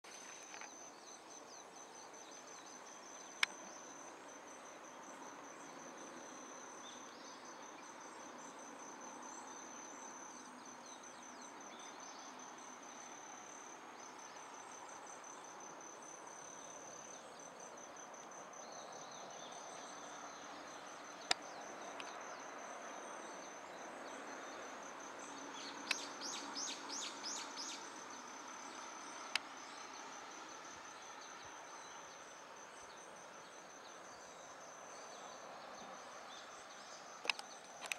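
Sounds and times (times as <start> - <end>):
faint outdoor hiss: 0.0 - 37.9
bird chirping: 25.2 - 30.0.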